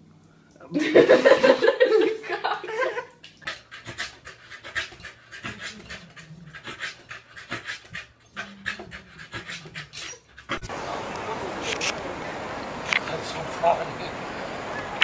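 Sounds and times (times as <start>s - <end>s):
dog panting: 3.4s - 10.7s.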